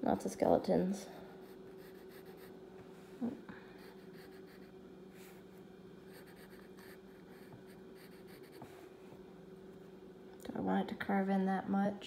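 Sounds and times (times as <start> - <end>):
steady low hum: 0.0 - 12.0
pencil scratching on paper: 1.2 - 2.6, 3.8 - 4.8, 6.1 - 8.8.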